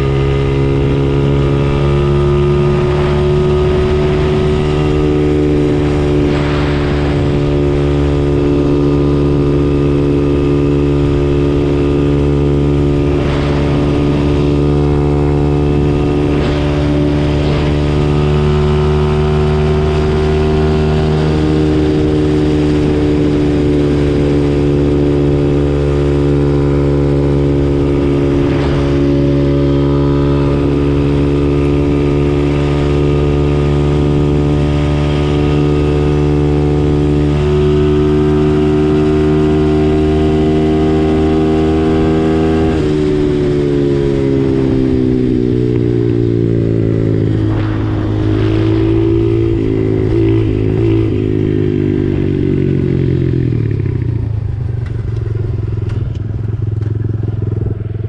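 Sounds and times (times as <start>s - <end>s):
mini bike engine running: 48.8s - 58.0s.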